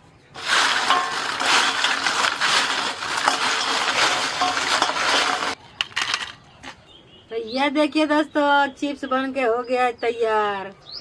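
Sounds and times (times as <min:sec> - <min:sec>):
fried chips crackling and rattling: 0:00.3 - 0:06.4.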